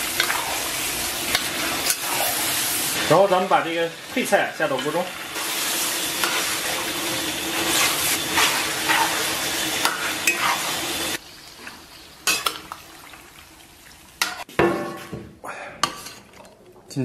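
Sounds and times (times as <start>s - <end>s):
metal spatula scraping a wok: 0.0s - 3.0s, 4.7s - 12.5s
vegetables sizzling in a wok: 0.0s - 14.6s.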